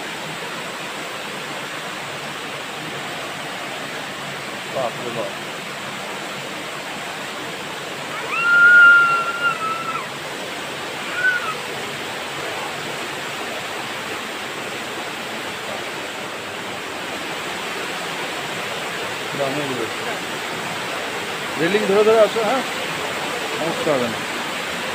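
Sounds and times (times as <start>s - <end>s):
waterfall rushing over rocks: 0.0s - 24.9s
high whistle-like call: 8.2s - 10.0s, 11.1s - 11.6s.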